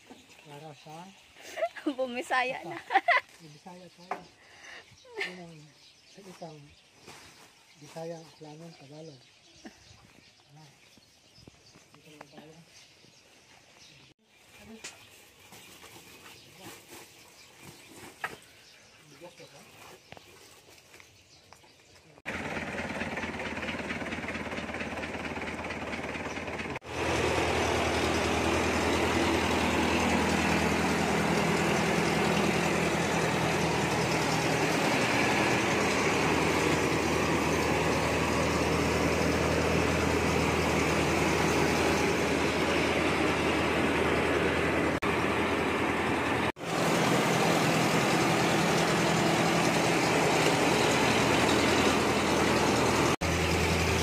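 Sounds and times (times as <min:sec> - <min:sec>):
engine humming: 0:22.2 - 0:54.0
grain hissing through mill: 0:26.8 - 0:45.0.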